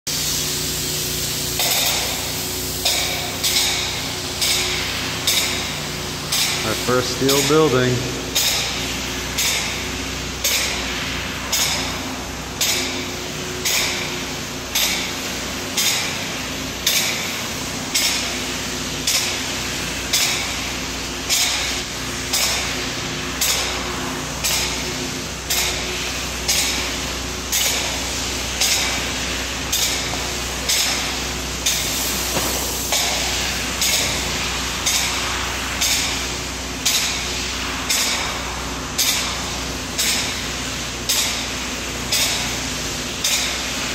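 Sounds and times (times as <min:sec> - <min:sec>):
spray foam gun hissing: 0:00.1 - 0:43.9.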